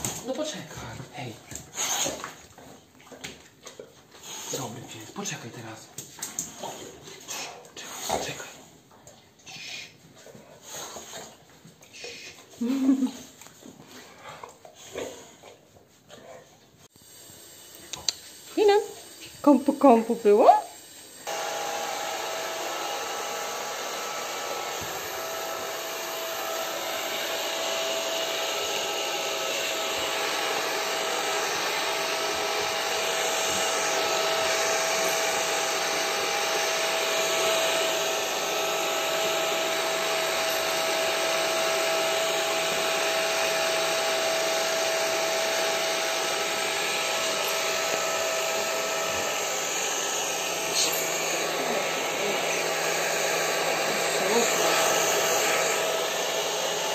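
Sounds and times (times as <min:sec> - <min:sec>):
hair dryer running: 0:00.0 - 0:02.3, 0:12.6 - 0:13.2, 0:17.7 - 0:20.6, 0:21.2 - 0:56.9.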